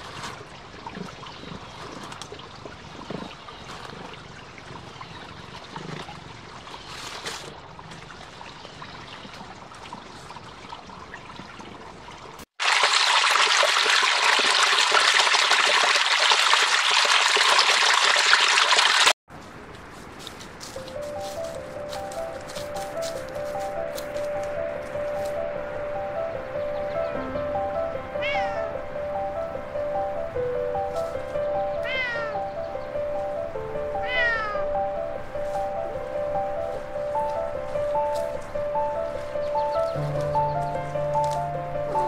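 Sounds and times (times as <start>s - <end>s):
small stream trickling: 0.0s - 19.2s
rustles in dry leaves: 6.6s - 7.8s, 19.3s - 26.8s, 27.5s - 42.0s.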